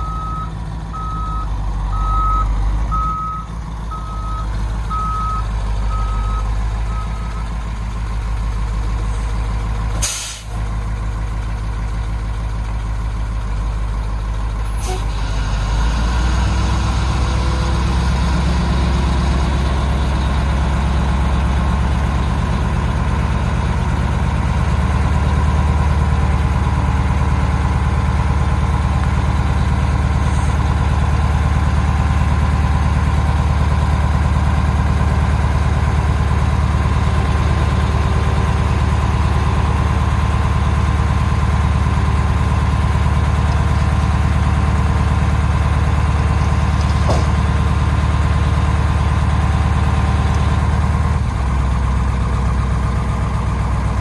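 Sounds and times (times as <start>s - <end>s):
reversing alarm beeping: 0.0s - 7.5s
diesel truck engine running: 0.0s - 54.0s
air brakes hissing: 10.0s - 10.6s, 14.7s - 15.5s.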